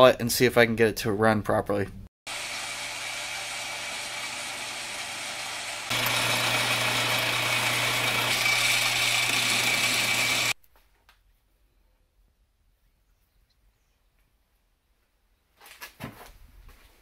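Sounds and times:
metal lathe running: 0:02.3 - 0:10.6.

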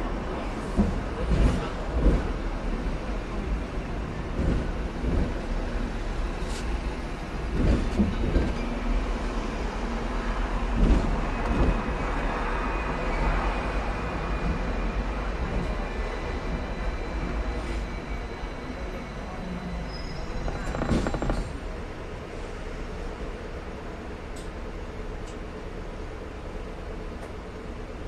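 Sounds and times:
tram wheels rumbling on track: 0:00.0 - 0:28.0
tram knocks: 0:00.7 - 0:02.4, 0:04.2 - 0:05.5, 0:07.5 - 0:08.7, 0:10.7 - 0:12.2, 0:20.4 - 0:21.8.

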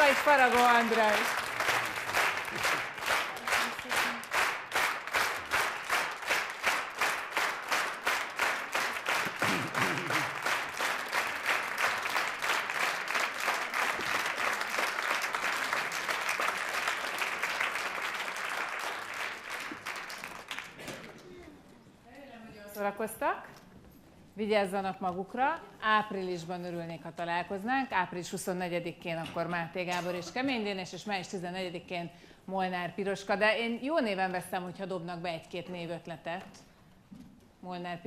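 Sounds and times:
audience clapping in rhythm: 0:00.0 - 0:21.2.

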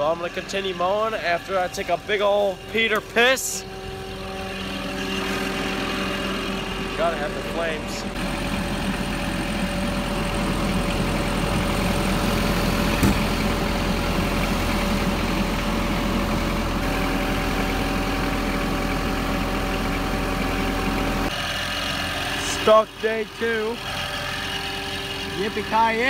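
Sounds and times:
lawn mower engine idling: 0:00.0 - 0:26.0.

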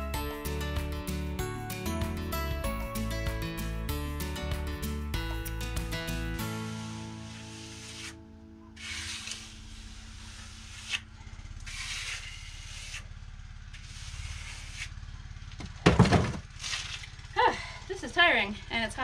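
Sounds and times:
small engine running: 0:06.4 - 0:19.0
trowel scraping render on wall: 0:06.8 - 0:08.2, 0:08.8 - 0:13.1, 0:13.7 - 0:15.0, 0:16.5 - 0:17.1.

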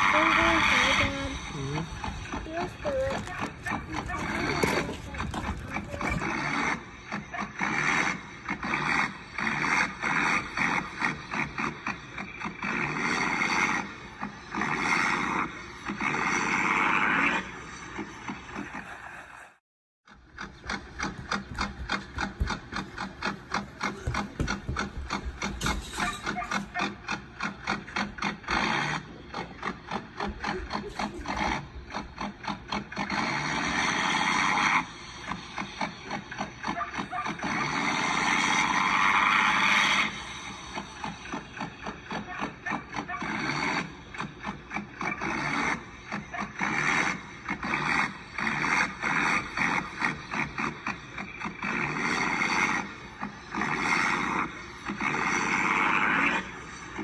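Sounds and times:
toy truck rolling and scraping: 0:00.0 - 0:57.0
chain scraping on concrete: 0:00.9 - 0:06.7, 0:20.7 - 0:26.9.

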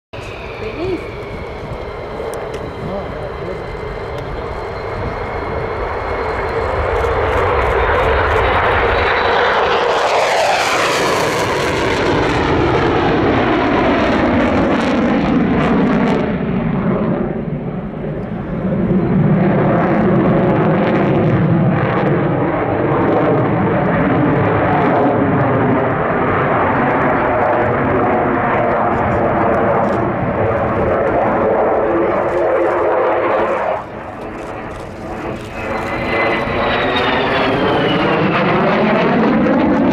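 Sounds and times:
jet engine rushing: 0:00.2 - 0:39.9.

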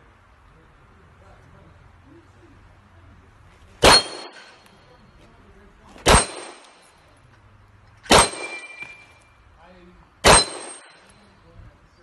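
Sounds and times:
pistol shots: 0:03.8 - 0:04.6, 0:06.0 - 0:06.8, 0:08.0 - 0:09.0, 0:10.2 - 0:11.0.

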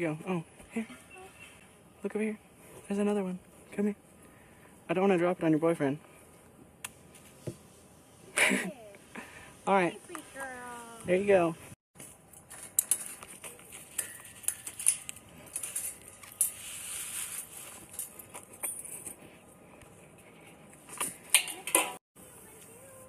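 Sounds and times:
wire mesh cage clinking: 0:12.4 - 0:16.7.

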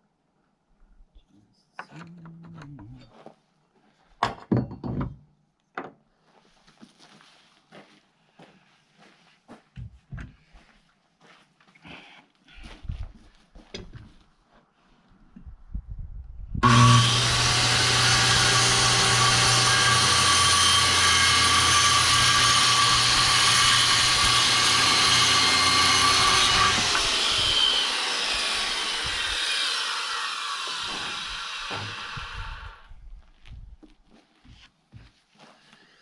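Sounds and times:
electric power saw running: 0:16.6 - 0:32.9
saw blade winding down: 0:16.6 - 0:32.9.

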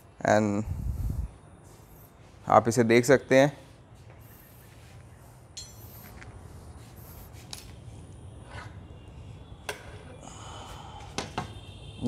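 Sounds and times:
steady low hum: 0:00.0 - 0:12.0
faint clinks and taps: 0:05.6 - 0:06.3.

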